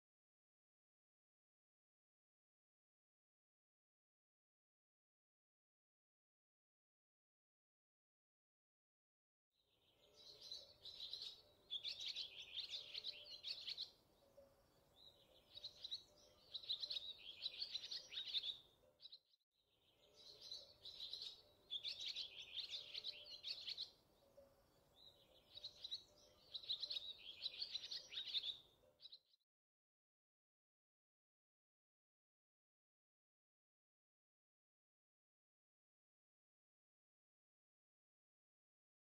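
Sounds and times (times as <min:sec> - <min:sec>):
bird chirps and trills: 0:09.9 - 0:18.7, 0:19.8 - 0:29.2.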